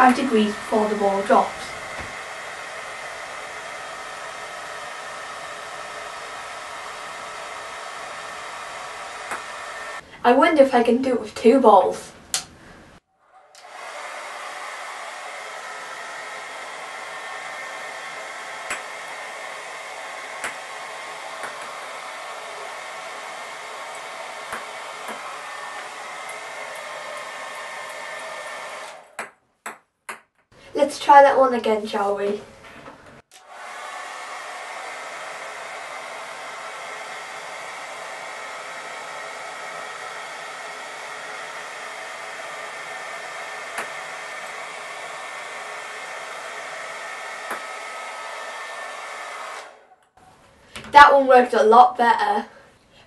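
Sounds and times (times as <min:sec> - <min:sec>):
hairdryer running: 0:00.0 - 0:10.0, 0:13.4 - 0:29.2, 0:33.2 - 0:50.0.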